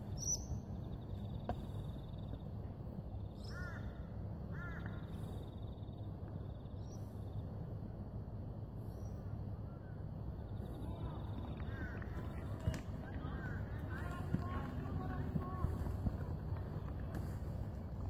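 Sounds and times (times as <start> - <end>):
low background rumble: 0.0 - 18.0
crow cawing: 3.5 - 5.0, 11.5 - 12.4.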